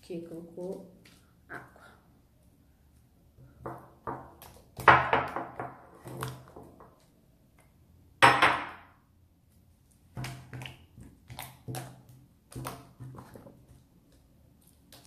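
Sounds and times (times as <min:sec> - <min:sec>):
slime squishing and slapping: 0:09.9 - 0:15.0.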